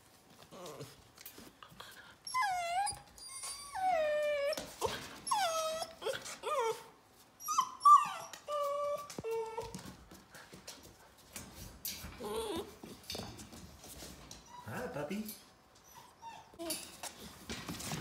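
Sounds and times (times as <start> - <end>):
puppies whining: 2.2 - 9.9, 12.1 - 13.0, 15.8 - 17.0.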